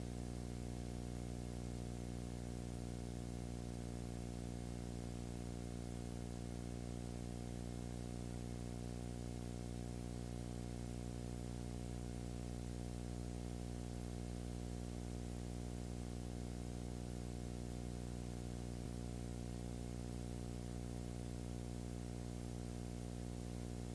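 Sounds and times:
low electrical hum: 0:00.0 - 0:23.9.

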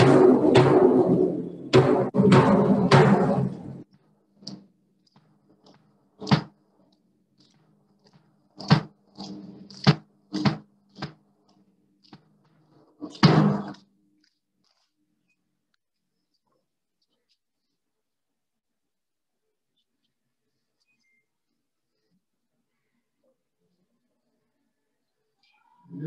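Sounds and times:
drum beat: 0:00.0 - 0:03.6.

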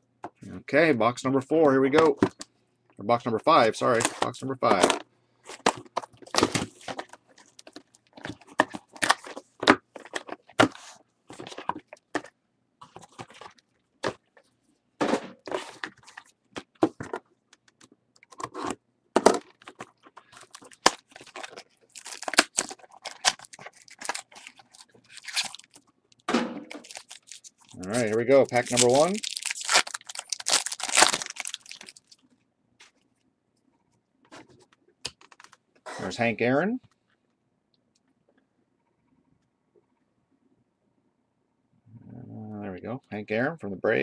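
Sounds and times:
foil pack crinkling: 0:19.5 - 0:32.2.

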